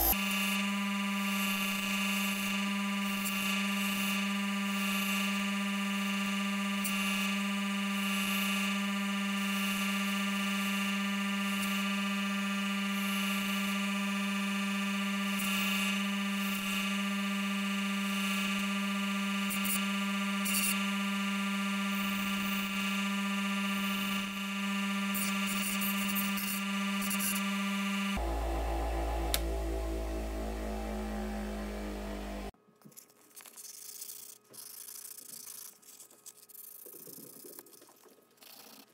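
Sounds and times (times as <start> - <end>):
bench grinder whine: 0.0 - 1.2, 27.6 - 32.5.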